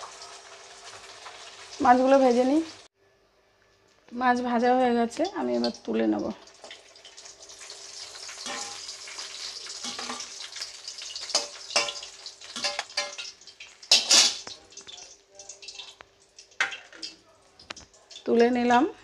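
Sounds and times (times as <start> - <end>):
fish sizzling in oil: 0.0 - 2.9, 4.4 - 19.0
metal spatula scraping pan: 8.2 - 10.4.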